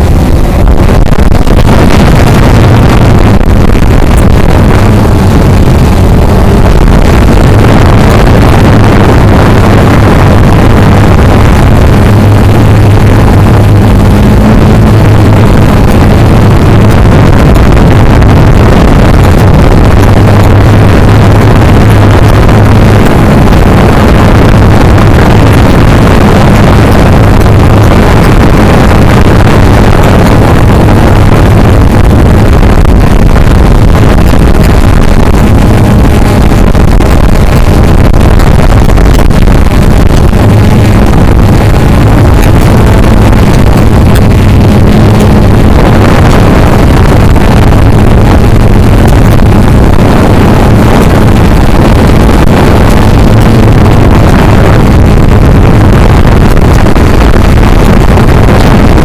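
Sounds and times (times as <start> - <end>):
drone motors humming: 0.0 - 59.0
wind rushing over microphone: 0.0 - 59.0.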